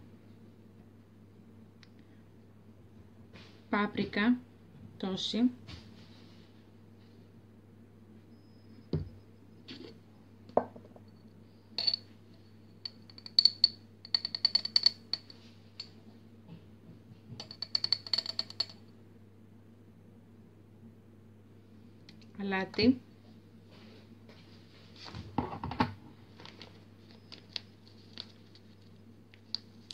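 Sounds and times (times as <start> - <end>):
metal spoon clinking in glass jar: 11.0 - 12.1, 12.7 - 15.9, 17.4 - 18.8.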